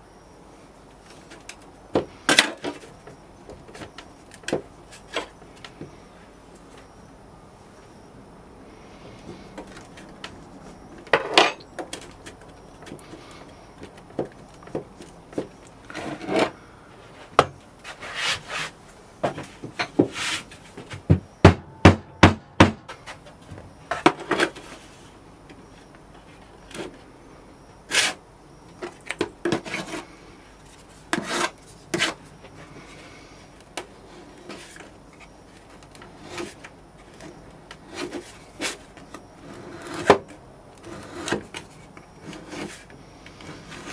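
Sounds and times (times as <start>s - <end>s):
sand scraping: 17.2s - 18.8s, 20.0s - 20.6s.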